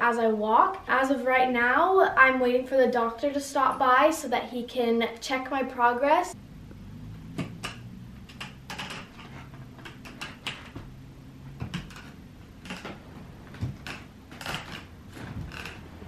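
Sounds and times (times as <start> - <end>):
low steady hum: 0.0 - 16.0
crutches tapping on wooden floor: 7.3 - 16.0.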